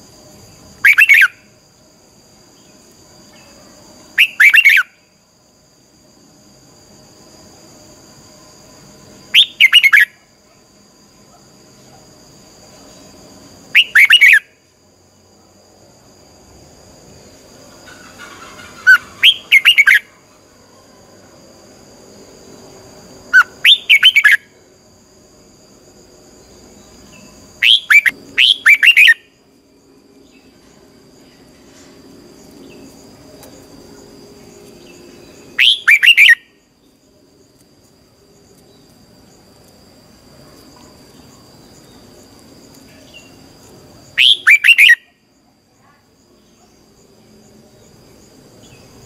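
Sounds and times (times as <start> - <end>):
faint high-pitched hum: 0.0 - 49.0
bird singing downward phrases: 0.8 - 1.5, 4.2 - 4.9, 9.4 - 10.2, 13.8 - 14.6, 17.8 - 20.5, 23.4 - 24.6, 27.2 - 29.3, 34.8 - 36.6, 44.2 - 45.1.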